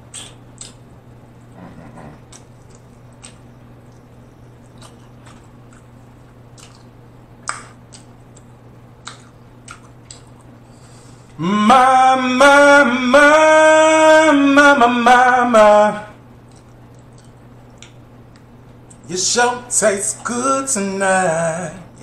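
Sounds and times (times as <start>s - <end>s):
chewing with wet mouth clicks: 0.1s - 0.8s, 2.3s - 10.6s, 16.4s - 19.0s
man singing loudly: 11.4s - 16.2s, 19.1s - 22.0s.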